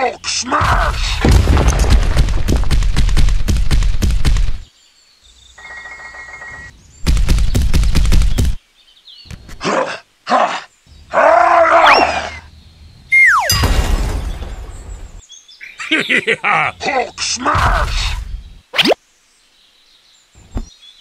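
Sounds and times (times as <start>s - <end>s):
crashing rumbles: 1.0s - 4.6s, 13.5s - 15.2s
falling whistle: 13.1s - 13.5s.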